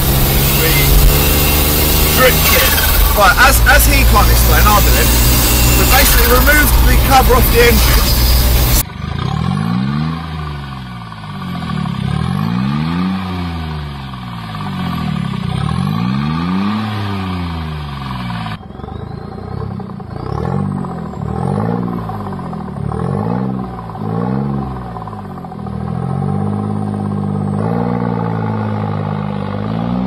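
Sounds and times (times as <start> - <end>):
diesel engine revving: 0.0 - 30.0.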